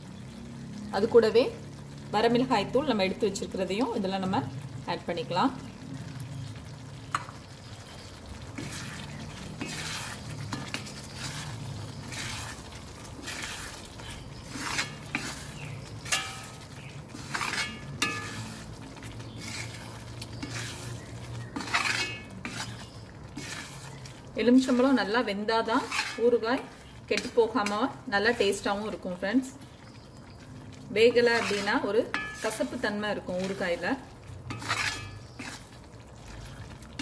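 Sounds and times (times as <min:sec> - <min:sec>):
low sizzle of frying: 0:00.0 - 0:37.0
spoon scraping a pan: 0:08.4 - 0:29.2, 0:31.0 - 0:37.0
spoon clinking against pan: 0:16.1 - 0:16.6, 0:17.6 - 0:18.5, 0:32.1 - 0:32.6.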